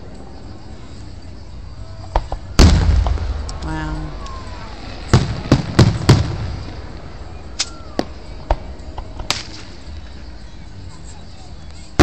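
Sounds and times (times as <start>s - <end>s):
firework shells bursting: 2.1s - 10.0s.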